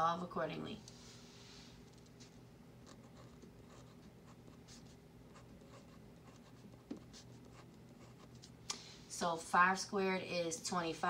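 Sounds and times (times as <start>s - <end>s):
pen scratching on paper: 2.9s - 8.5s.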